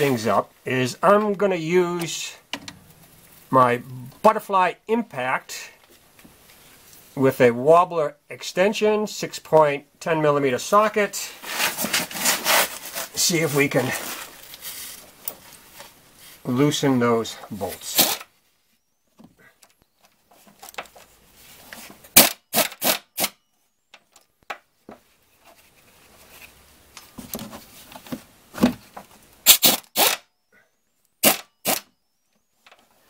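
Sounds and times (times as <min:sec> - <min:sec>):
impact wrench clacking: 0:29.5 - 0:30.2.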